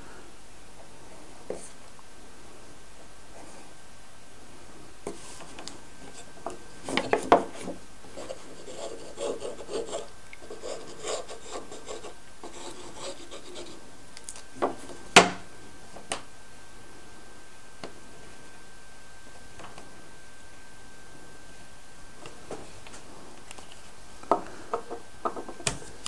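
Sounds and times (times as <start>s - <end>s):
wood rubbing against wood: 6.9s - 13.8s.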